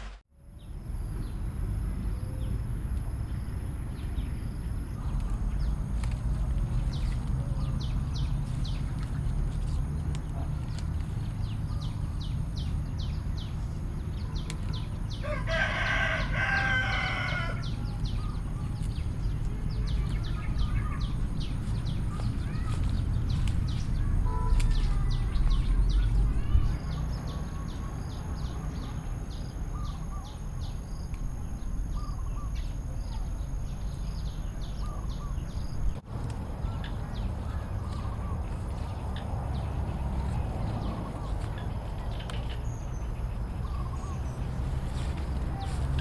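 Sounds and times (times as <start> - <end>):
rooster crowing: 15.2 - 17.8.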